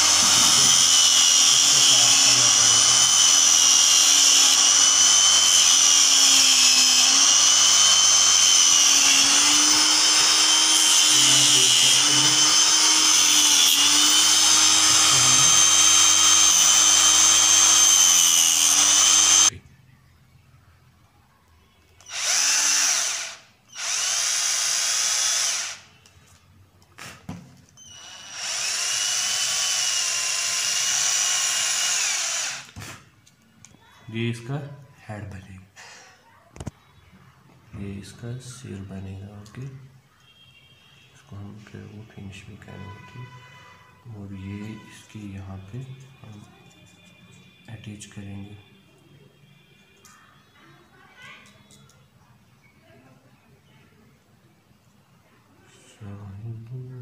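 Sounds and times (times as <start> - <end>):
cordless drill bursts: 0.0 - 19.5, 22.0 - 25.9, 27.8 - 32.8
angle grinder whining: 0.0 - 19.6, 22.0 - 25.9, 27.8 - 32.8.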